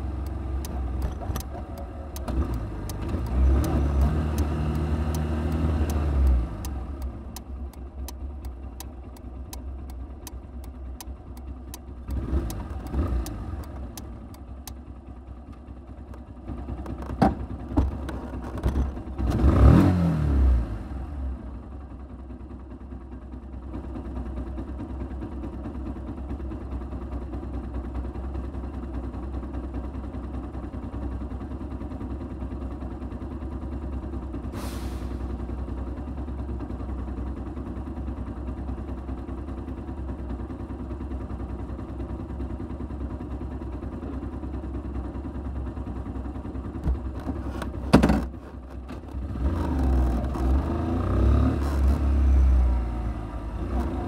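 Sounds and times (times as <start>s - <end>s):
motorcycle engine revving: 0.0s - 7.4s, 12.0s - 14.4s, 18.6s - 21.2s, 46.8s - 54.0s
motorcycle engine idling: 0.0s - 19.2s, 21.1s - 34.5s, 35.1s - 50.8s
clicks: 0.2s - 11.8s
brief hiss: 34.6s - 35.2s.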